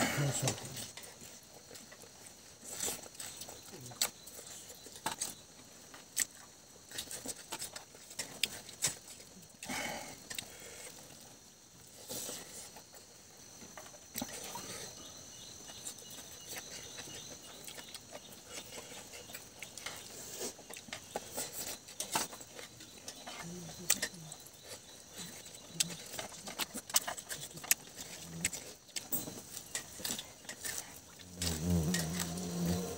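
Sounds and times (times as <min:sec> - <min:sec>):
small irregular clicks: 0:01.7 - 0:11.3, 0:15.7 - 0:32.4
person chewing food: 0:05.9 - 0:11.2, 0:11.9 - 0:32.4.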